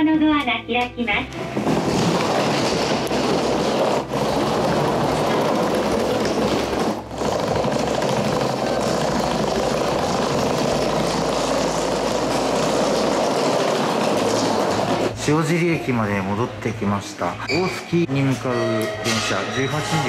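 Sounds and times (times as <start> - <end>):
train running: 1.3 - 16.4.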